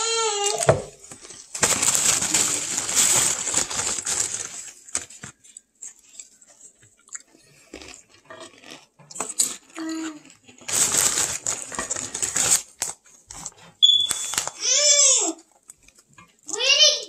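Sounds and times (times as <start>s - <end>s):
crunching of crisp food: 0.0s - 16.6s
chewing with small clicks: 5.4s - 10.7s, 15.4s - 16.6s.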